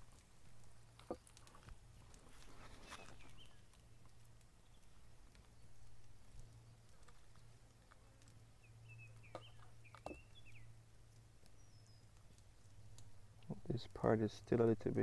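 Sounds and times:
faint bird chirps: 0:02.8 - 0:03.6, 0:08.6 - 0:10.8, 0:11.5 - 0:12.2.

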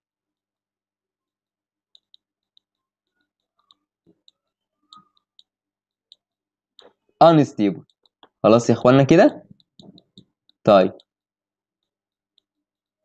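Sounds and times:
computer mouse clicks: 0:09.5 - 0:11.1.

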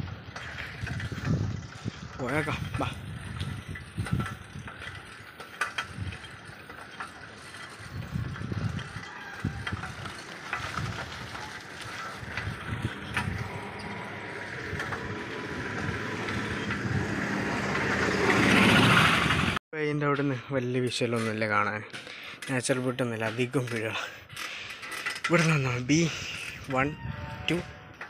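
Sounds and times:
bicycle clicks and rattles: 0:00.0 - 0:19.4, 0:21.0 - 0:28.0
low rumble: 0:09.6 - 0:19.6.

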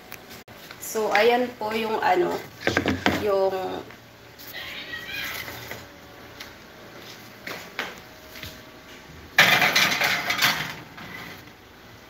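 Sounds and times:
pan scraping onto metal rack: 0:09.4 - 0:11.5.

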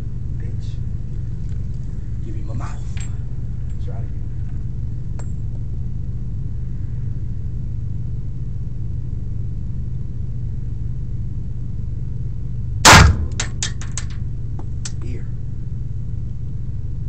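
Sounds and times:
steady low hum: 0:00.0 - 0:17.0
loud pistol shot: 0:12.8 - 0:14.0.

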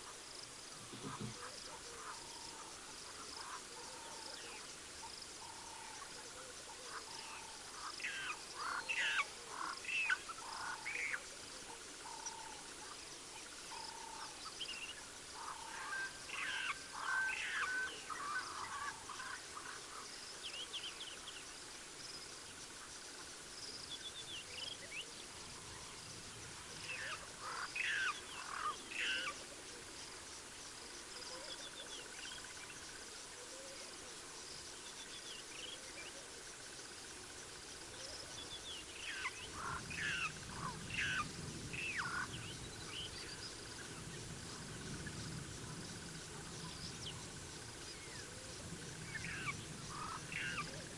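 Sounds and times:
insects chirring: 0:00.0 - 0:50.9
bird calls: 0:00.8 - 0:13.0, 0:13.6 - 0:21.4, 0:26.7 - 0:29.9, 0:37.9 - 0:44.0, 0:44.8 - 0:50.9.

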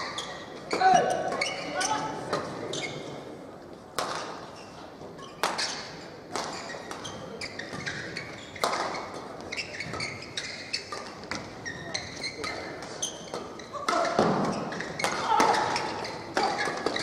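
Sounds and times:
shoes squeaking on court: 0:00.0 - 0:03.4, 0:04.2 - 0:17.0
rackets hitting shuttlecock: 0:03.9 - 0:17.0.

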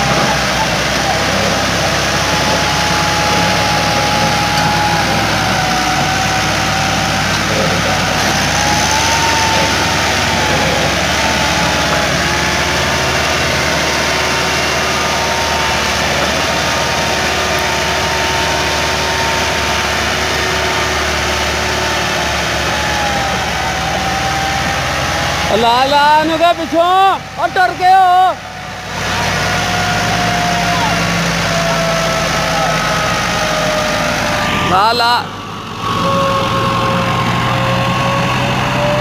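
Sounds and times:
thin wavering whine: 0:00.0 - 0:27.6, 0:28.2 - 0:39.0
tractor diesel engine under load: 0:00.0 - 0:39.0.

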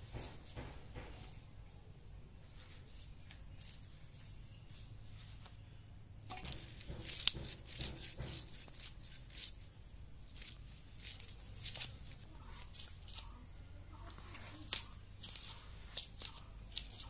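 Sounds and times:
fish scales being scraped: 0:02.6 - 0:05.5, 0:06.3 - 0:13.4, 0:14.2 - 0:17.0.

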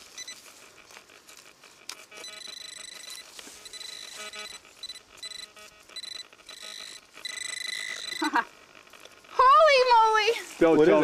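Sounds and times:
metal detector beeping: 0:00.0 - 0:08.5.

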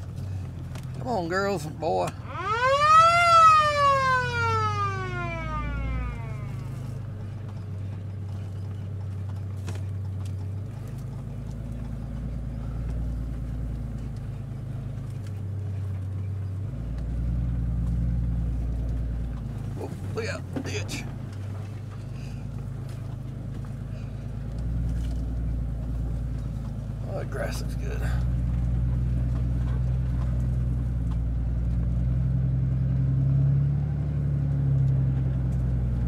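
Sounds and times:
truck engine running: 0:00.0 - 0:36.0
siren winding up and down: 0:02.2 - 0:06.9.

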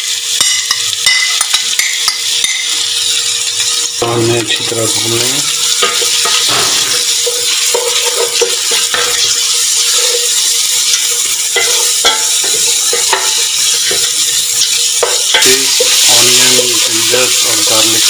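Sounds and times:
onions sizzling in oil: 0:00.0 - 0:18.0
wooden spoon scraping pot: 0:05.8 - 0:14.2.

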